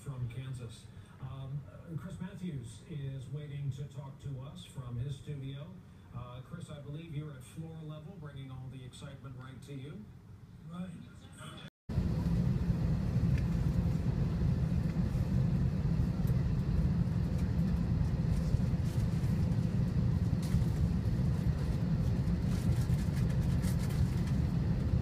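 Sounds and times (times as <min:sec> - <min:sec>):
airliner cabin rumble: 0:11.9 - 0:25.0.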